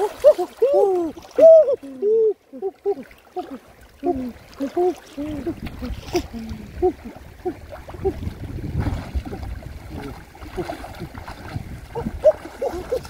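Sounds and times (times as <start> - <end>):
muddy water sloshing and splashing: 0.0 - 13.0.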